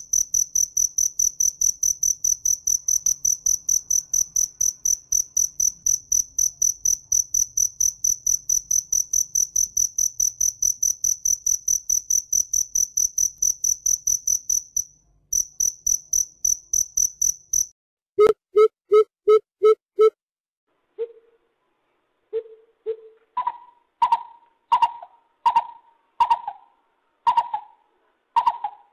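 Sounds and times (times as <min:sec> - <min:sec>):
cricket chirping: 0:00.0 - 0:17.7.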